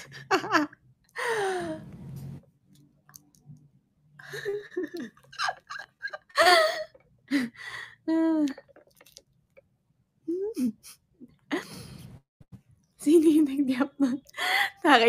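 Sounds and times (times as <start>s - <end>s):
woman laughing: 0.0s - 1.6s, 4.2s - 8.3s.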